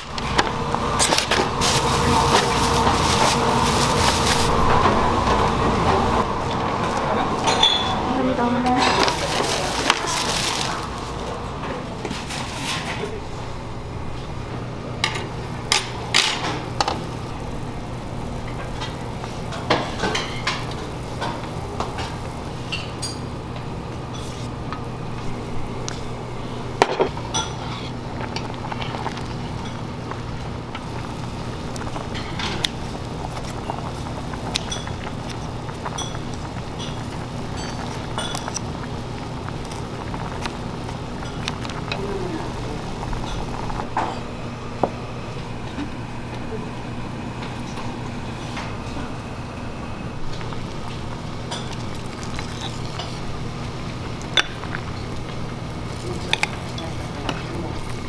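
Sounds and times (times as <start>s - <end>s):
steady low hum: 0.0s - 58.0s
dishes and utensils clinking: 7.4s - 8.0s, 22.7s - 23.3s, 35.8s - 38.7s.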